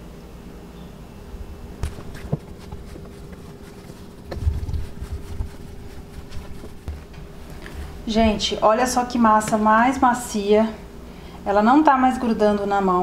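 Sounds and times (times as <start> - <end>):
dough kneading thumps and slaps: 1.8 - 7.4.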